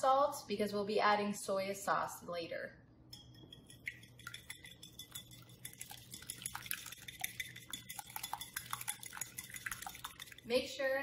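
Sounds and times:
fork clinking against bowl: 3.1 - 10.4.

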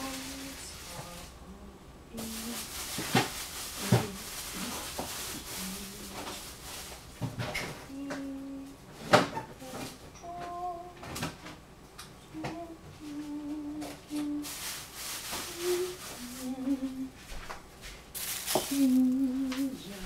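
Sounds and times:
plastic wrap rustling: 0.0 - 1.4, 2.1 - 7.9, 13.0 - 20.0
person humming: 5.5 - 6.4, 7.8 - 8.8, 9.6 - 11.2, 12.3 - 14.5, 15.4 - 17.2, 18.6 - 20.0.

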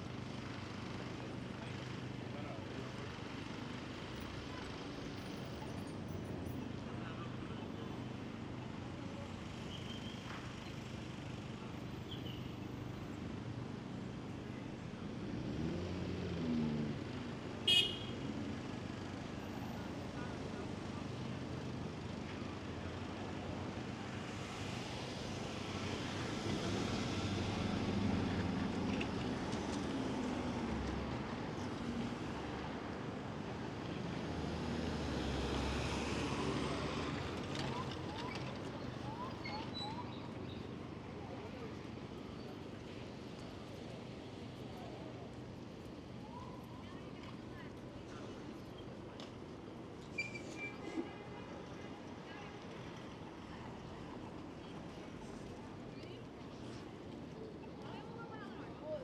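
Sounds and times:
traffic hum: 21.7 - 59.0
faint short high squeaks: 50.0 - 51.2.

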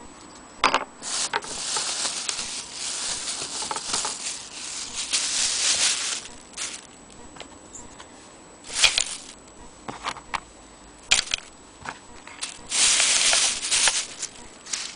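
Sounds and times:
plastic bag crinkling: 1.0 - 6.9, 8.7 - 9.4, 12.4 - 14.9.

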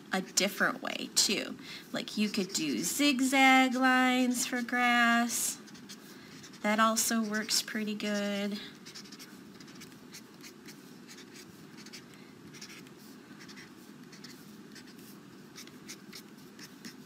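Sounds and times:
felt-tip marker scratching on paper: 2.2 - 2.8, 5.6 - 17.0.

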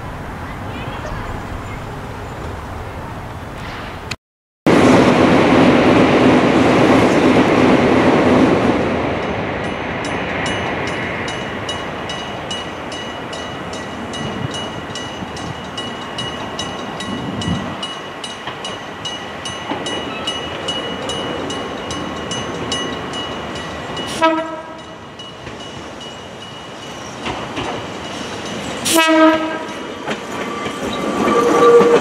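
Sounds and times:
loud rushing rumble: 0.0 - 9.6.

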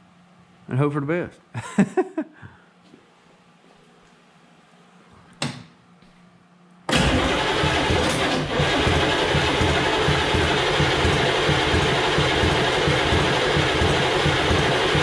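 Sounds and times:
starter cranking diesel engine: 6.9 - 15.0.

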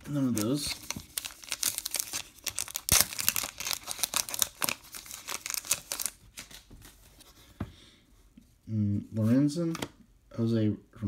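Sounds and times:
plastic wrapper tearing and crinkling: 0.0 - 6.6.

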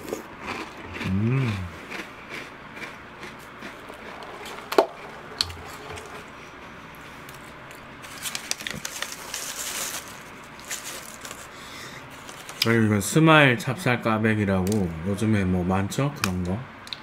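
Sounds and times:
chewing cereal: 0.0 - 6.1
paper wrapping crinkling: 8.0 - 12.7.

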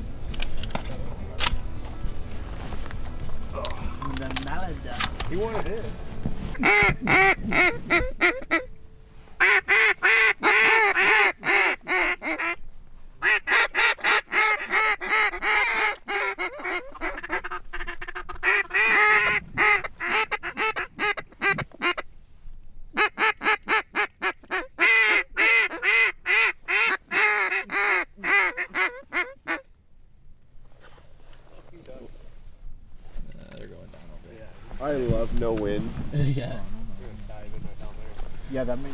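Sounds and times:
duck call quacks: 6.5 - 8.7, 9.4 - 12.6, 13.2 - 22.0, 23.0 - 29.7.

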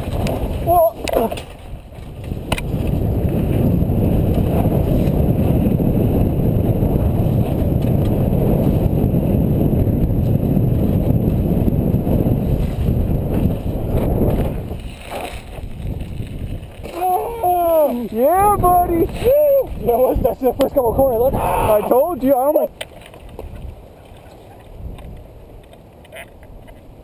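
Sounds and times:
wind rush: 0.0 - 22.7.

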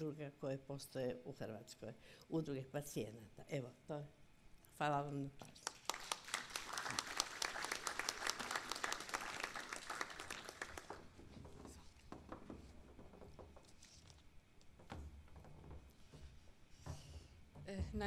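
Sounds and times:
audience applauding: 5.7 - 11.2.

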